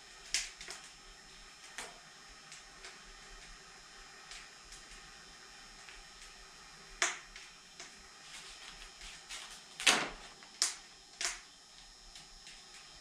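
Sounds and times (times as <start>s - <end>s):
vinyl sheet crinkling and crackling: 7.0s - 13.0s.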